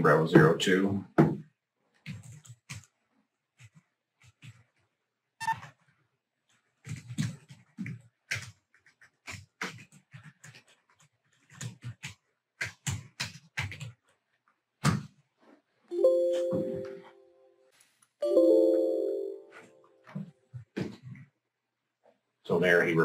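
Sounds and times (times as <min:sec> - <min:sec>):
typing on computer keyboard: 0:06.9 - 0:14.2.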